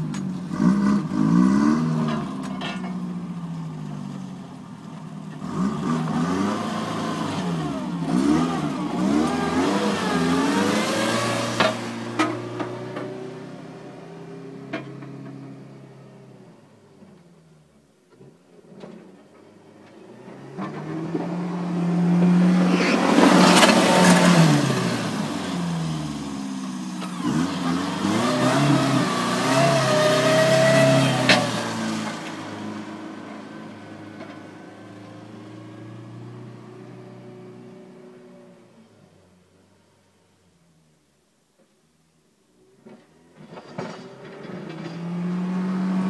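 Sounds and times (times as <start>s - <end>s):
truck engine revving: 0.0s - 2.8s, 5.2s - 13.6s, 20.2s - 36.6s, 43.8s - 46.0s.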